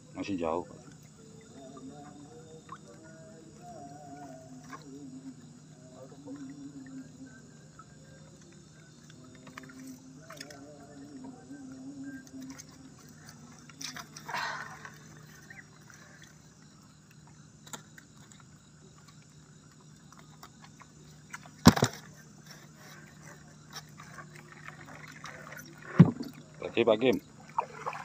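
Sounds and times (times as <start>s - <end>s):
low steady hum: 0.0s - 28.0s
water splashing and dripping: 24.0s - 28.0s.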